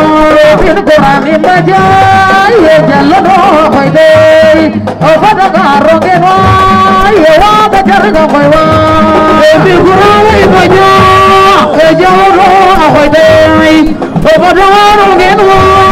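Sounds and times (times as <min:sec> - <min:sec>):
woman singing a cappella: 0:00.2 - 0:15.9.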